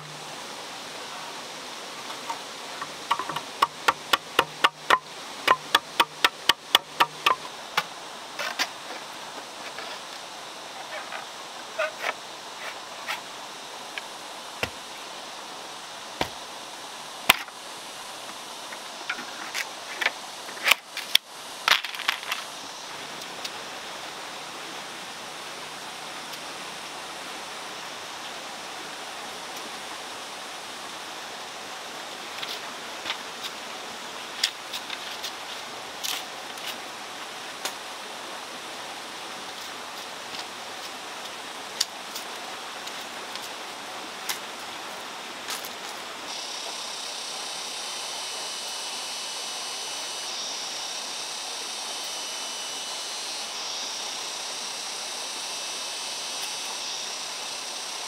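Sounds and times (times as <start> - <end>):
steady background hiss: 0.0 - 58.0
bamboo knocking: 2.1 - 7.5
machete clicking on bamboo: 2.8 - 7.5.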